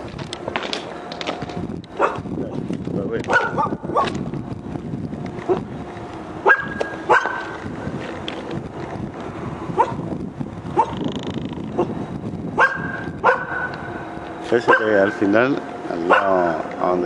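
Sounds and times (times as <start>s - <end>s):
steady background noise: 0.0s - 17.0s
dog barking: 2.0s - 2.2s, 3.3s - 4.1s, 6.4s - 7.6s, 9.8s - 10.0s, 10.8s - 11.0s, 12.6s - 13.8s, 14.6s - 15.0s, 16.0s - 16.5s.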